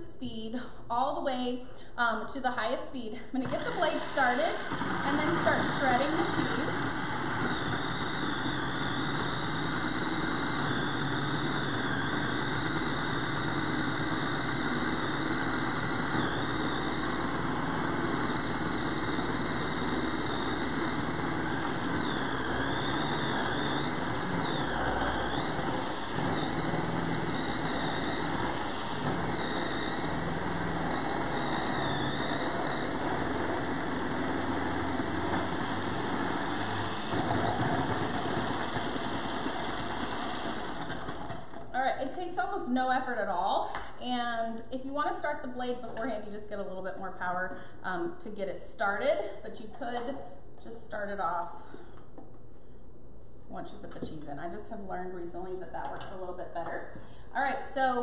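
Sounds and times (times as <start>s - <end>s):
food processor motor whine: 3.4s - 43.9s.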